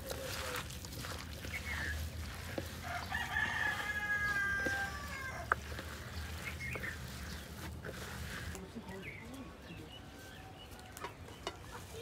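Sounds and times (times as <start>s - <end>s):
rooster crowing: 2.8s - 5.6s.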